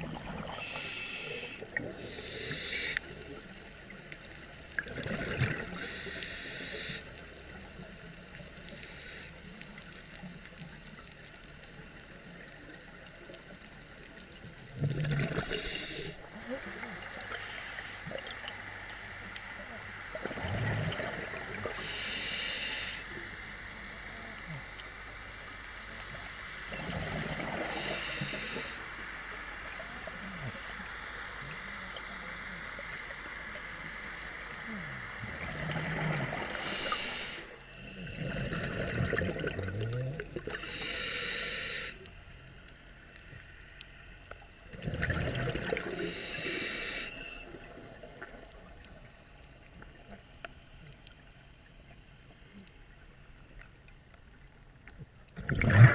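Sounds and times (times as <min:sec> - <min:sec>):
steady underwater hiss: 0:00.0 - 0:55.9
diver breathing through regulator: 0:00.4 - 0:03.1, 0:05.8 - 0:07.1, 0:15.2 - 0:16.2, 0:21.6 - 0:23.1, 0:27.6 - 0:28.9, 0:36.5 - 0:39.0, 0:40.4 - 0:42.1, 0:45.7 - 0:47.5
gurgling exhaled bubbles: 0:04.8 - 0:06.2, 0:14.6 - 0:17.4, 0:20.1 - 0:21.9, 0:26.7 - 0:28.6, 0:35.2 - 0:37.3, 0:37.9 - 0:40.9, 0:44.7 - 0:48.8, 0:55.3 - 0:55.9.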